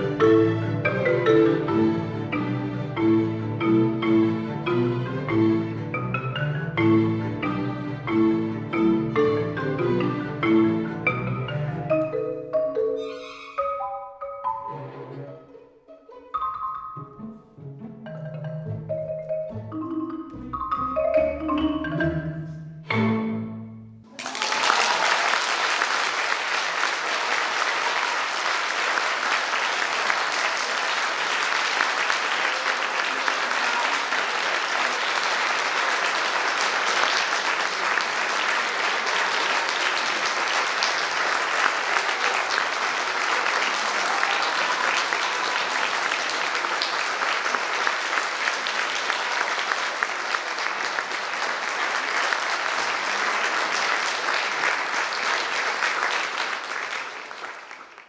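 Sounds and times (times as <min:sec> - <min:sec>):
marimba and orchestra: 0:00.0 - 0:24.1
audience applause: 0:24.1 - 0:58.0.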